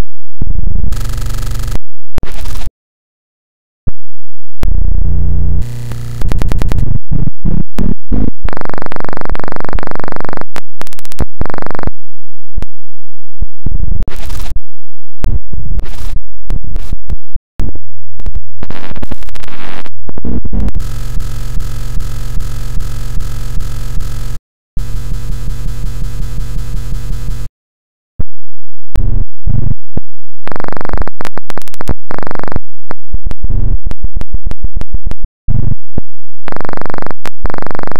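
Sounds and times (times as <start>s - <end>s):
scratch-like glitches: 0.4s - 2.7s, 4.6s - 12.0s, 13.6s - 14.6s, 15.2s - 27.5s, 29.0s - 29.8s, 30.5s - 37.9s
distorted electronic music: 0.5s - 2.7s, 4.6s - 11.9s.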